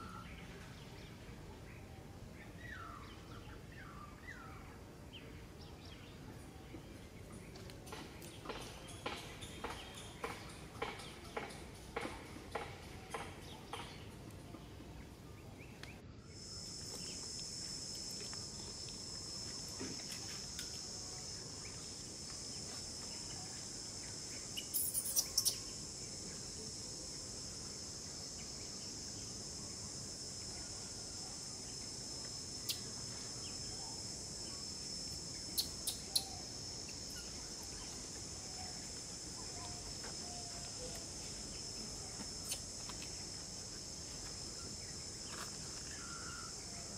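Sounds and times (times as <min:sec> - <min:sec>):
insects droning: 0:00.0 - 0:46.9.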